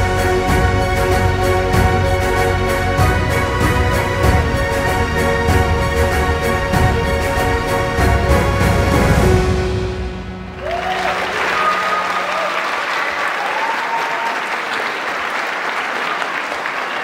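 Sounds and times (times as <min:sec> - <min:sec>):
orchestra final chord: 0:00.0 - 0:12.3
audience cheering: 0:10.4 - 0:17.0
audience applauding: 0:10.5 - 0:17.0.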